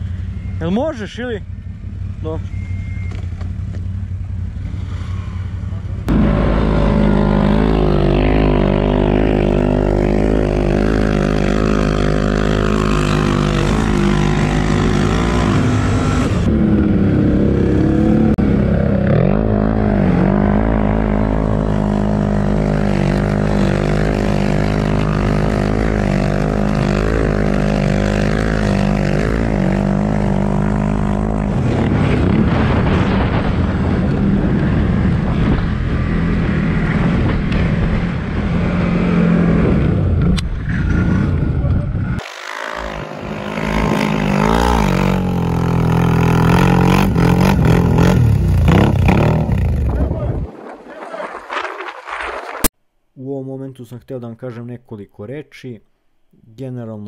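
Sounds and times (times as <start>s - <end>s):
atv engine running under load: 0.0s - 32.7s, 42.2s - 50.1s
snow track noise: 0.0s - 52.7s
wind noise: 6.1s - 42.2s, 42.9s - 52.7s.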